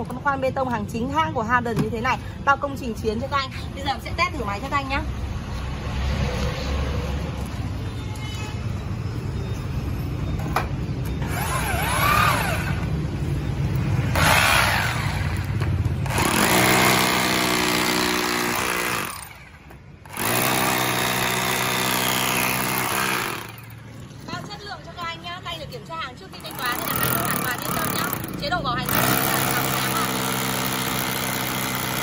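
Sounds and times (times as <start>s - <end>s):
hammer drill drilling into concrete: 14.1s - 15.4s, 16.1s - 19.4s, 20.1s - 23.6s, 26.5s - 32.0s.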